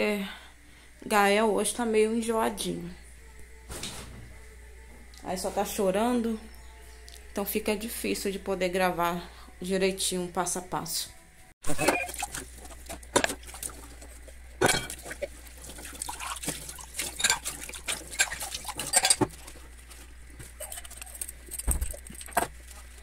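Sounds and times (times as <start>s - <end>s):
clinks of glass and crockery: 11.7s - 12.2s, 14.6s - 15.1s, 17.2s - 17.5s, 18.2s - 19.3s
sponge scrubbing dishes: 11.7s - 23.0s
tap water running: 11.7s - 23.0s.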